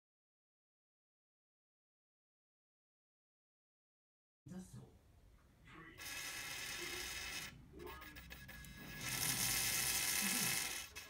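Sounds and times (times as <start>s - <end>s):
tiny electric motor whining: 6.0s - 11.0s.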